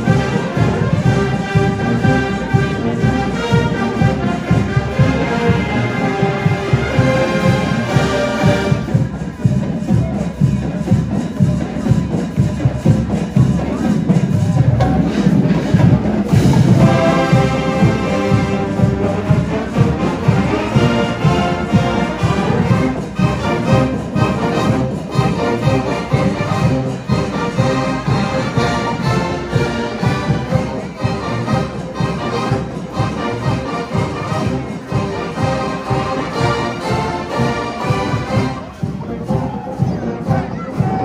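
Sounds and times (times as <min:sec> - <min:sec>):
marching band playing: 0:00.0 - 0:41.0.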